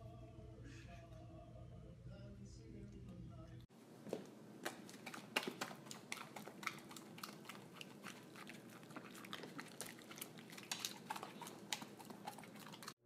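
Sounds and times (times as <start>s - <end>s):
dog chewing noodles: 4.6s - 13.0s.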